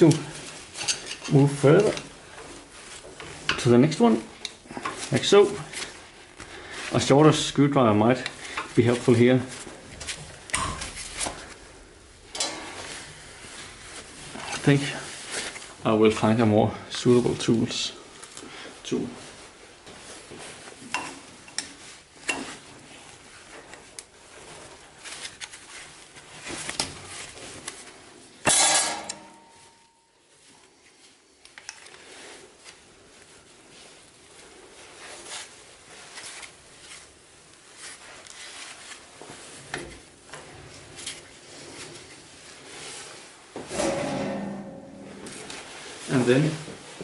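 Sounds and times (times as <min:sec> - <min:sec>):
metal clatter: 0:12.3 - 0:12.9, 0:28.5 - 0:29.8, 0:43.7 - 0:45.7.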